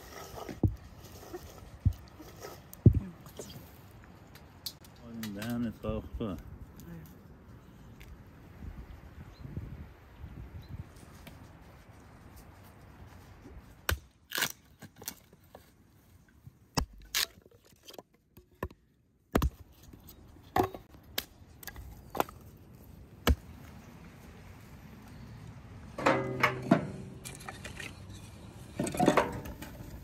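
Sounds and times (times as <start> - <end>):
hatchet chopping wood: 18.5 - 19.6.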